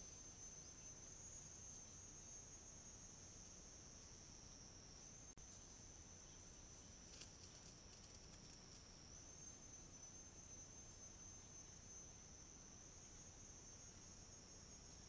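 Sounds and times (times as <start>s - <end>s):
faint crackles: 7.0s - 9.0s.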